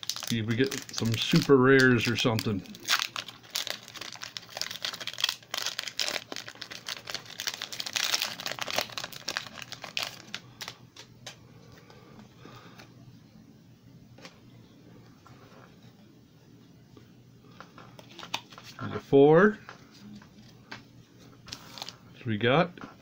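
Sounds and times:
foil wrapper crinkling and tearing: 0:00.0 - 0:10.8, 0:21.5 - 0:22.0
cards clicking and rustling: 0:17.7 - 0:18.8.

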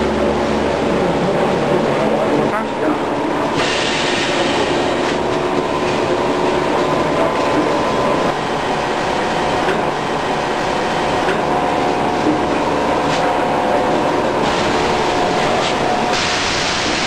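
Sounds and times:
machinery running: 0:00.0 - 0:17.0.

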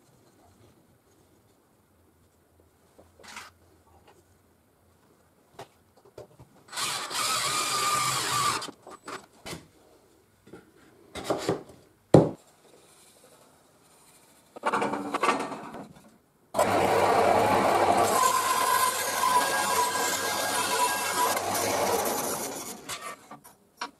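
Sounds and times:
bandsaw running: 0:06.7 - 0:08.7, 0:16.6 - 0:23.2
drill driver motor whining: 0:06.7 - 0:08.7, 0:16.6 - 0:23.0.

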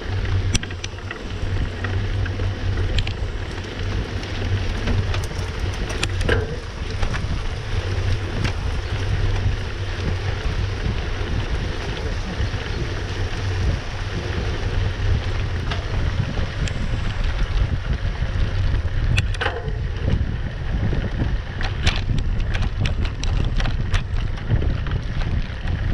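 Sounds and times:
bike clicking and rattling: 0:00.0 - 0:25.9
tyres rumbling on dirt road: 0:00.0 - 0:25.9
wind buffeting microphone: 0:00.0 - 0:25.9.

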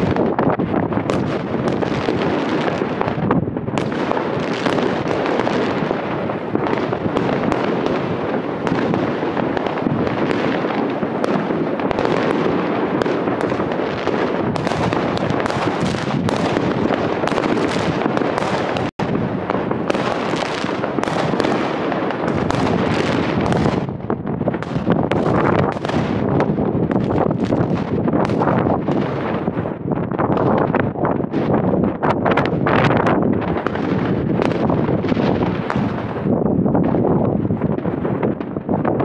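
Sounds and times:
fireworks and firecrackers barrage: 0:00.0 - 0:39.0.

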